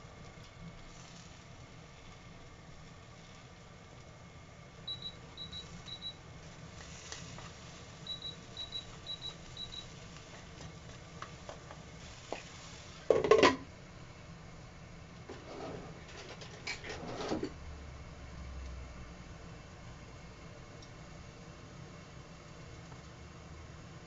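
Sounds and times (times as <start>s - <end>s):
kitchen timer double beeps: 4.9s - 6.2s, 8.0s - 9.9s.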